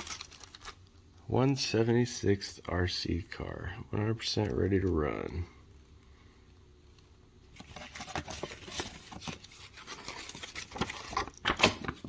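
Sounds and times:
paper rustling and crinkling: 0:00.0 - 0:00.9, 0:07.5 - 0:12.0.

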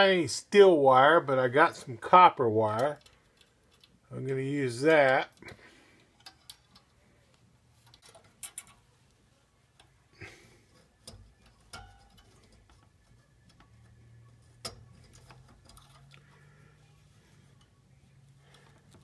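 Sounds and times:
wire clicking against metal: 0:02.7 - 0:04.1, 0:05.0 - 0:07.0, 0:07.8 - 0:08.9, 0:09.7 - 0:10.0, 0:10.7 - 0:16.9.

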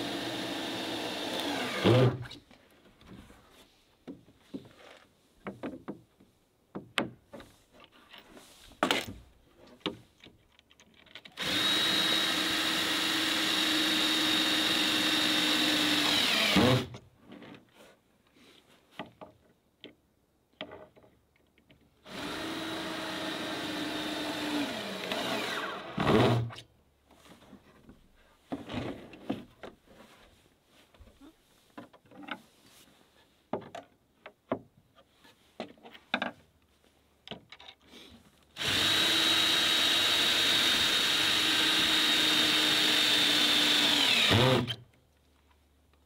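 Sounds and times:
power drill whining: 0:00.0 - 0:02.2, 0:11.4 - 0:16.9, 0:22.1 - 0:26.4, 0:38.6 - 0:44.8.

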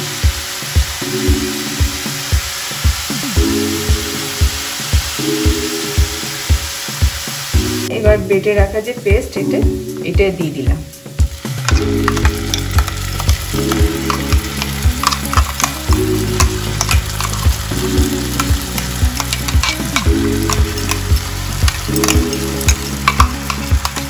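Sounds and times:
oil sizzling in a wok: 0:00.0 - 0:09.9, 0:11.0 - 0:24.0
spoon knocking bowl and pan: 0:11.6 - 0:24.0.

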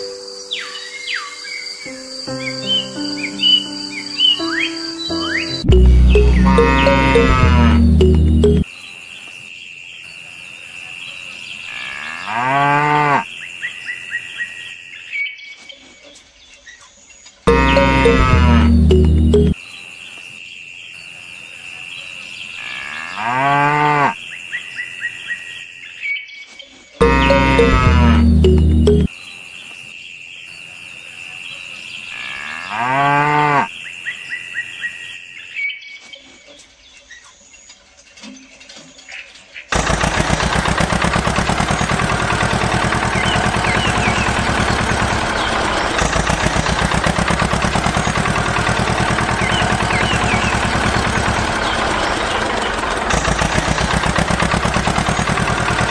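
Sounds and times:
short high chirps: 0:04.4 - 0:08.6
steady high-pitched tone: 0:05.1 - 0:08.6, 0:17.5 - 0:19.6, 0:27.0 - 0:29.1
cow mooing: 0:06.4 - 0:08.2, 0:11.8 - 0:13.3, 0:17.5 - 0:18.8, 0:22.6 - 0:24.2, 0:27.0 - 0:28.4, 0:32.2 - 0:33.7.

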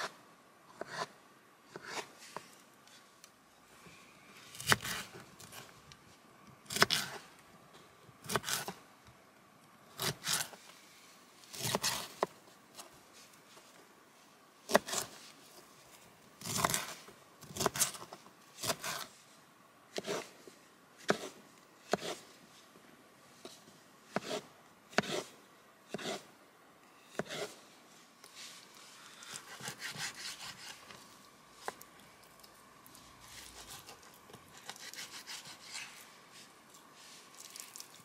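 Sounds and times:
knife cutting vegetables on board: 0:06.7 - 0:07.2, 0:08.2 - 0:08.8, 0:11.5 - 0:12.3, 0:14.7 - 0:15.2, 0:16.4 - 0:19.1, 0:19.9 - 0:20.3, 0:21.0 - 0:22.3, 0:24.1 - 0:25.3, 0:25.9 - 0:26.3, 0:27.1 - 0:27.6, 0:29.2 - 0:30.9, 0:33.3 - 0:36.0.

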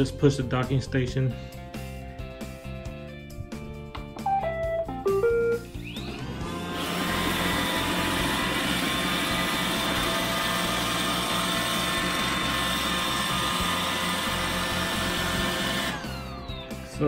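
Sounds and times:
robot vacuum motor whirring: 0:06.4 - 0:16.7.

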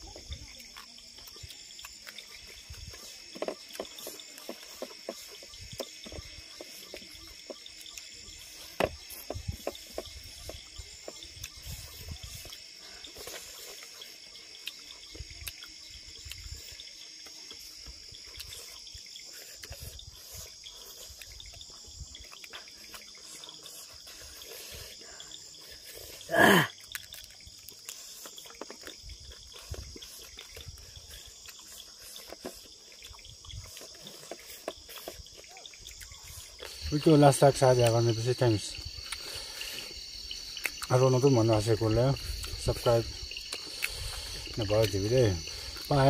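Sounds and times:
crickets chirping: 0:00.0 - 0:46.0
people eating from paper plates: 0:00.0 - 0:46.0.

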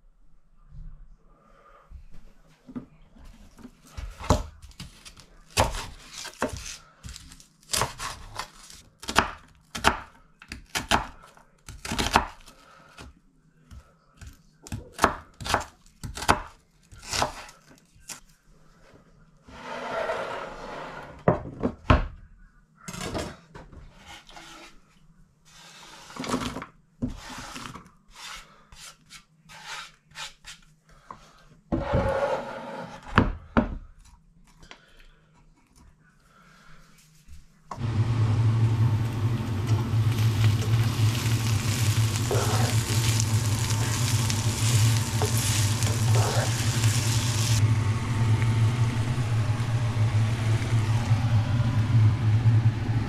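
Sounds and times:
knife scraping: 0:42.1 - 0:47.6.

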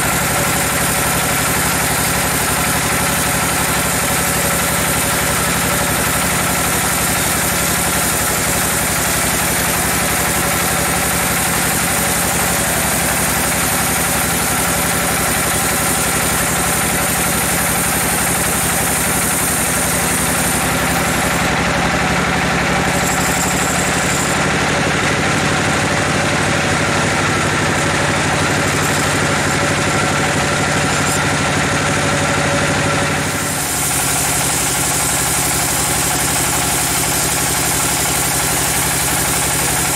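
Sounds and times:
saw blade cutting log hiss: 0:00.0 - 0:21.5, 0:33.2 - 0:39.9
band saw machine drone: 0:00.0 - 0:39.9.

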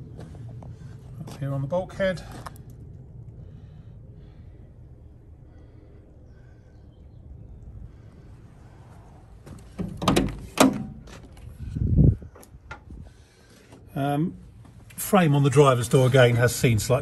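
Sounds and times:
heavy door thunk: 0:09.7 - 0:11.0
car door metal clunks: 0:09.7 - 0:11.1.

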